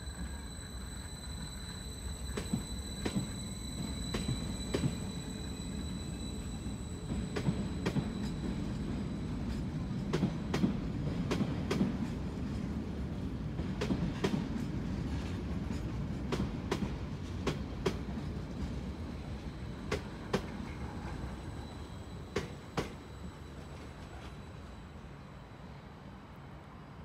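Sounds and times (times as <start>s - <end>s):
train rumble: 0.0s - 27.0s
train wheels clacking on rail joints: 2.2s - 5.9s, 7.1s - 19.0s, 19.8s - 21.3s, 22.3s - 23.2s.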